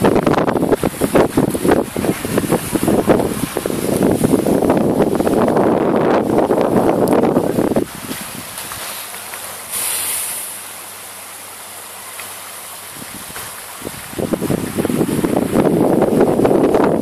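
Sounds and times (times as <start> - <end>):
wind buffeting microphone: 0.0 - 9.2, 12.8 - 17.0
outdoor hiss: 0.4 - 16.9.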